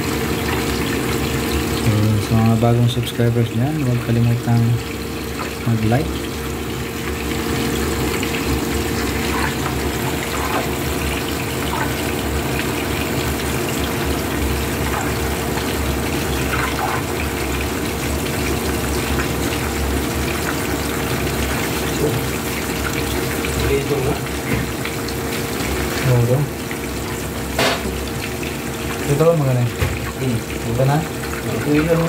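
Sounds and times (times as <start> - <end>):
fish sizzling in hot oil: 0.0 - 2.5, 4.4 - 32.0
oil popping: 4.2 - 29.1.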